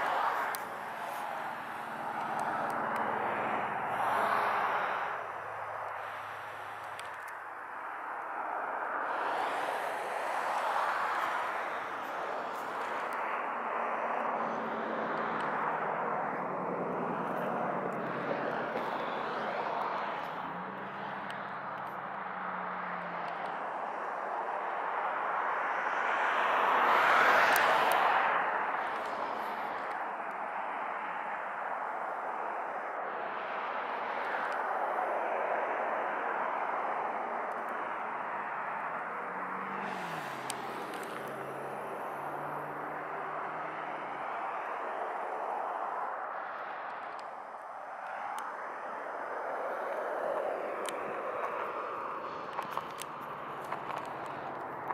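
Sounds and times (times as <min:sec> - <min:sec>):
road traffic passing: 0:00.0 - 0:54.9.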